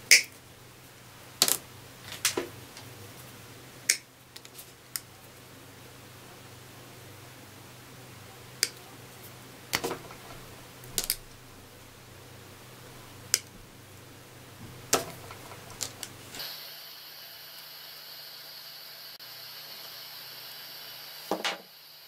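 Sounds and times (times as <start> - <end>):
side cutters snipping wire: 0.1 - 0.3, 9.7 - 11.3
high hiss: 14.2 - 22.0.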